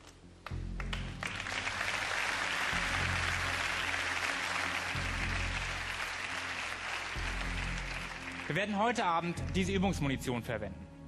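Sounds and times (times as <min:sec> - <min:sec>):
background music with bass notes: 0:00.0 - 0:11.0
audience applauding: 0:00.8 - 0:09.1.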